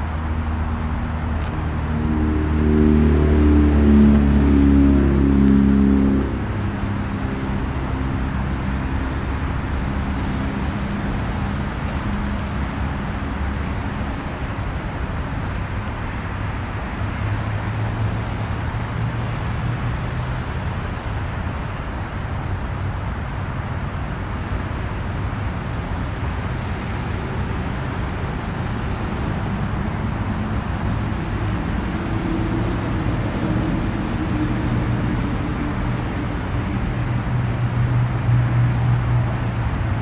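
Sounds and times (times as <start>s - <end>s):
higher hum: 0.0s - 16.8s
low engine hum: 0.0s - 40.0s
road traffic rumble: 0.0s - 40.0s.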